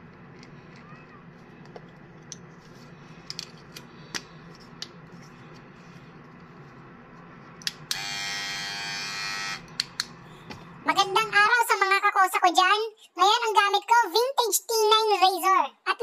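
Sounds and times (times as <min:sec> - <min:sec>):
low room hum: 0:00.0 - 0:15.8.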